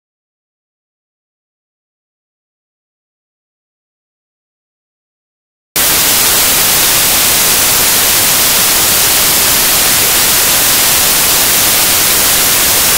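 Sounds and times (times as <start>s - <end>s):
static hiss: 5.8s - 12.9s.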